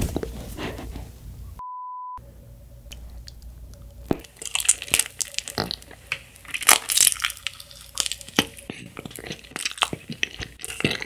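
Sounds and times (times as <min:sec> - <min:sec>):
steady beep: 0:01.6 - 0:02.9
chewing toasted marshmallow: 0:02.9 - 0:11.0.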